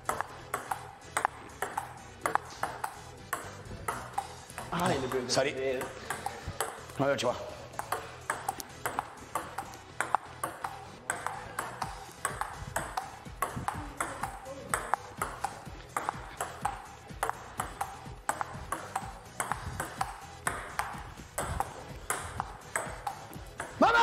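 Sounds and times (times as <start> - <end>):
table tennis ball clicking: 0.0 - 7.0, 7.8 - 23.8
background music: 0.0 - 24.0.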